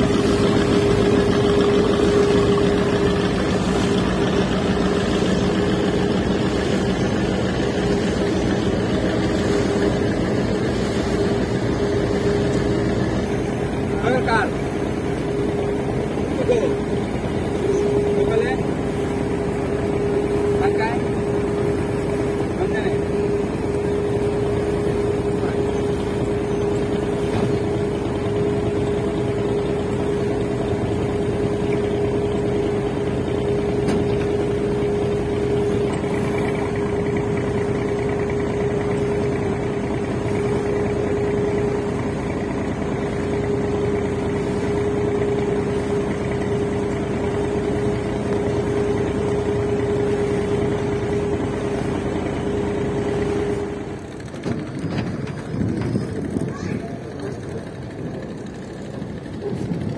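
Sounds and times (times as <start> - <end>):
boat engine droning: 0.0 - 59.9.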